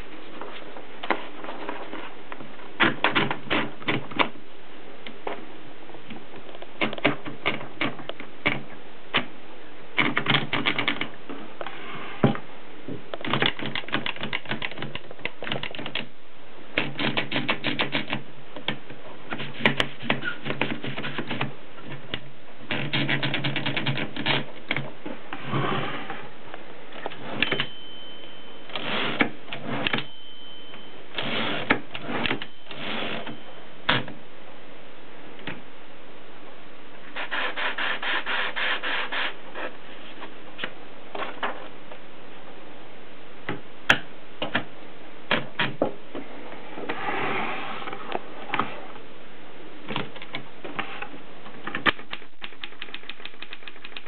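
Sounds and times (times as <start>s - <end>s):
typewriter keystroke clacks: 13.2s - 16.1s, 16.8s - 18.8s, 22.7s - 24.8s, 51.8s - 54.0s
typewriter bell ringing: 27.4s - 29.0s, 30.0s - 31.0s.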